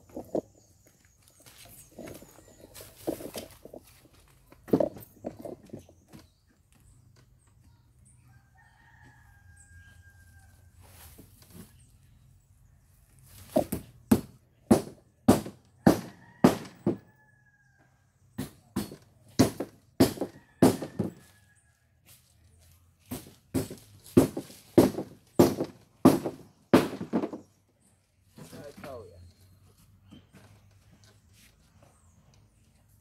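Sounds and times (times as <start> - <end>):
hammer blows on wooden boards: 13.6 - 17.1, 18.4 - 21.2, 23.1 - 27.4.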